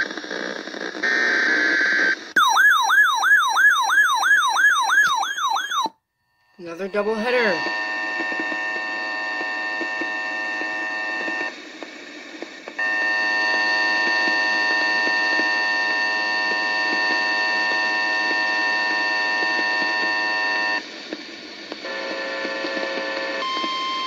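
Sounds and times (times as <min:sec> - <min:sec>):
weather radio alert tone: 0:06.6 - 0:07.8.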